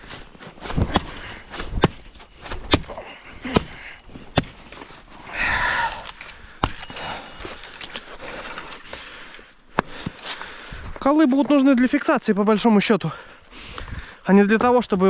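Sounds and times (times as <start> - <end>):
hatchet chopping sapling: 0.0 - 4.9, 6.0 - 8.0, 9.7 - 10.4.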